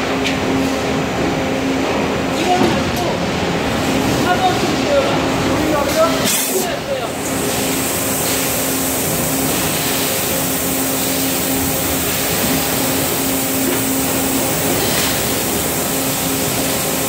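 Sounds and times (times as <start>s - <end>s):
machine hiss: 6.3s - 17.0s.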